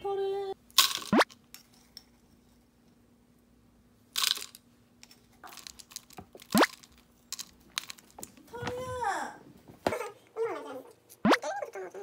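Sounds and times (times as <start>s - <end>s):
faint steady hum: 0.0s - 12.0s
kitchen rustling: 4.2s - 11.2s.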